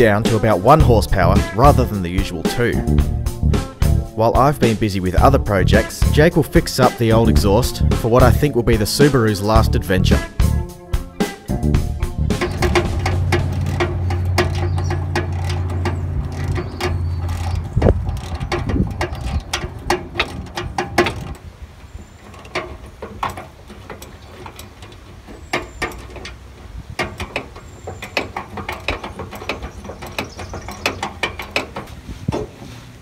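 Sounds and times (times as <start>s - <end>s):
socket ratchet clicking: 10.6s - 21.4s, 22.3s - 32.0s.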